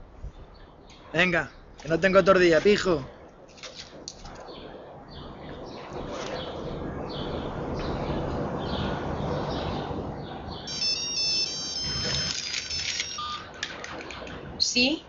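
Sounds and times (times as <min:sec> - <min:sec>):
street noise rushing: 0:00.0 - 0:15.0
birds chirping: 0:04.2 - 0:15.0
mobile phone ringing: 0:10.7 - 0:13.6.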